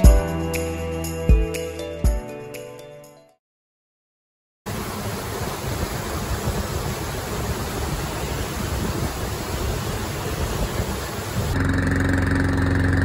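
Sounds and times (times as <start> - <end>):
wind and sea rushing: 4.7 - 11.6
low gusty rumble: 4.7 - 11.8.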